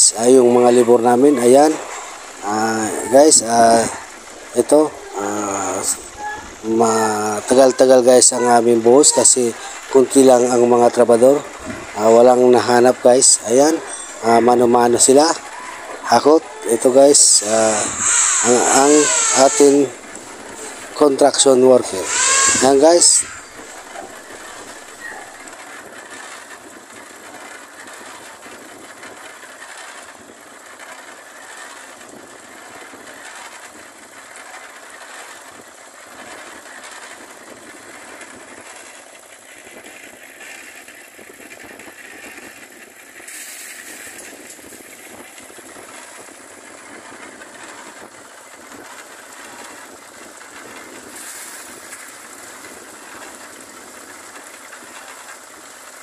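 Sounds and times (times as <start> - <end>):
mixer drum clattering churn: 0.0 - 56.0
small engine chugging: 0.0 - 56.0
hissing scrapes: 0.1 - 26.4, 41.9 - 46.2, 48.7 - 53.5.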